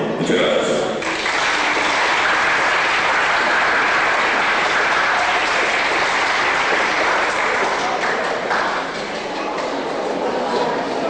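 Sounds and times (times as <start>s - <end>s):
audience applauding: 1.0s - 9.8s.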